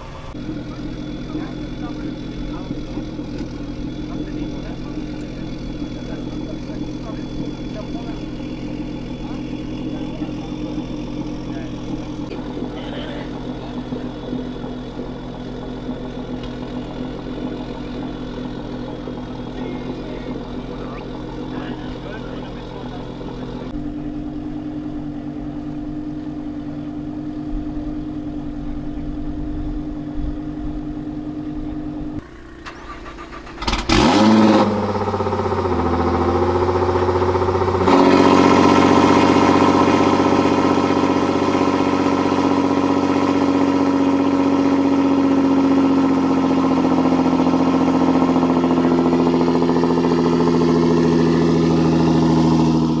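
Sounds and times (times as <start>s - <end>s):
car engine idling: 0.0s - 53.0s
engine starting and revving: 32.2s - 53.0s.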